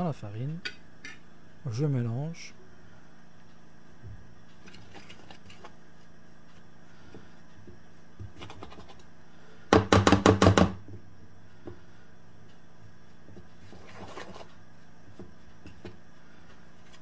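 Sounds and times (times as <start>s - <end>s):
whisk scratching in bowl: 13.6s - 14.6s.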